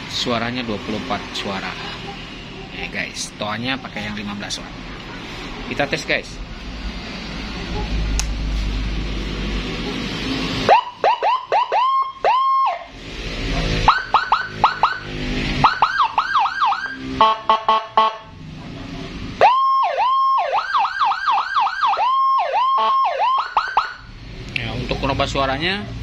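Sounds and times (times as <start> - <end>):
police siren chirping and warbling: 10.6 - 13.0, 13.8 - 18.3, 19.4 - 24.1.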